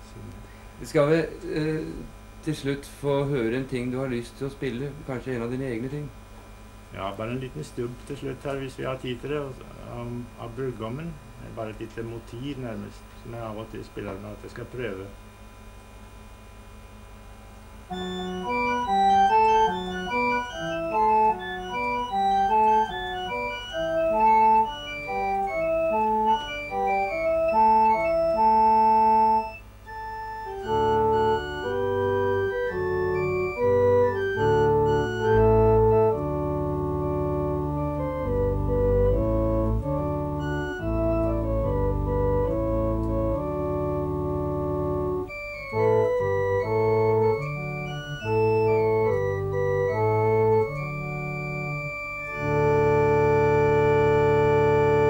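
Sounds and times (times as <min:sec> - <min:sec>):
electronic organ playing: 0:00.0 - 0:06.1, 0:17.8 - 0:55.0.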